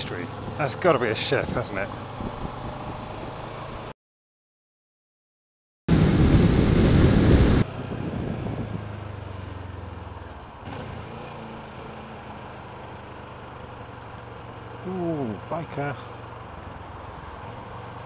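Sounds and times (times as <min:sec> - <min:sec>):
wind and road noise: 0:00.0 - 0:03.9, 0:05.9 - 0:18.0
motorcycle engine running: 0:05.9 - 0:18.0.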